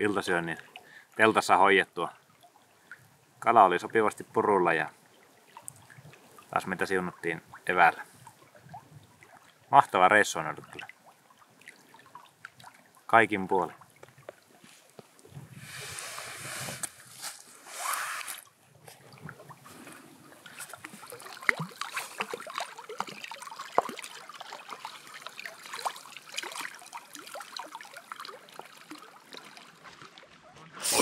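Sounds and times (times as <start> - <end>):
water splashing around legs: 18.2 - 30.4.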